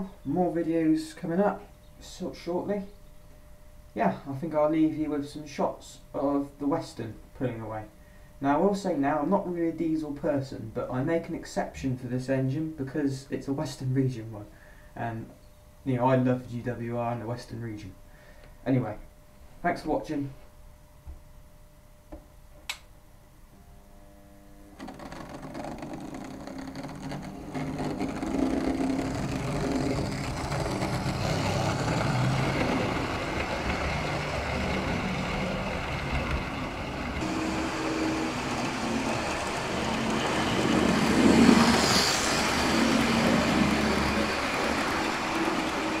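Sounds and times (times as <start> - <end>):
small click: 22.1 - 22.9
model train motor humming: 24.8 - 46.0
model train wheels rumbling: 24.8 - 46.0.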